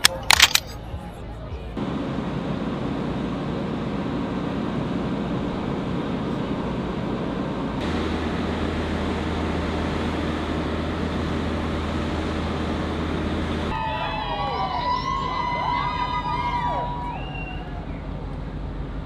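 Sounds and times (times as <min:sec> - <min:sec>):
low rumbling harbour ambience: 0:00.0 - 0:19.0
steady low hum: 0:00.9 - 0:13.8.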